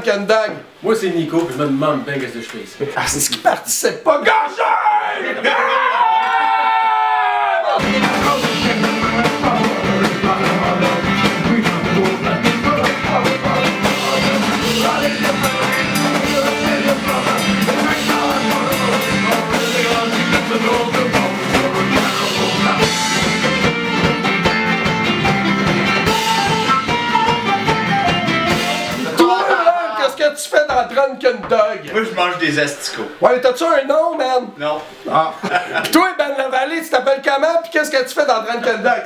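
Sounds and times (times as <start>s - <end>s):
person singing: 7.7s - 23.5s
electric bass: 7.8s - 29.2s
drum kit: 7.8s - 29.8s
acoustic guitar: 7.8s - 30.1s
flute playing: 26.0s - 29.5s.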